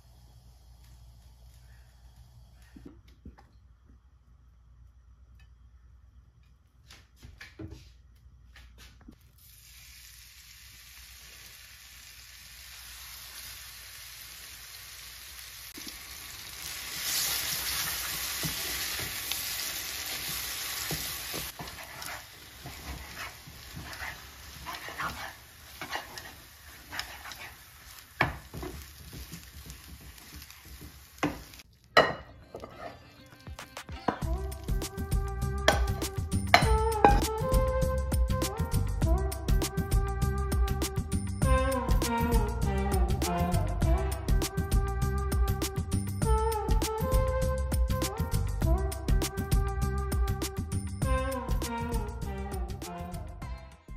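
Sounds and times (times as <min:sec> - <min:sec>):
oil hissing in a pan: 0:00.0 - 0:02.8, 0:09.2 - 0:31.6
potato sizzling in a pan: 0:09.3 - 0:32.9
spatula scraping a pan: 0:20.9 - 0:28.4, 0:32.5 - 0:33.1.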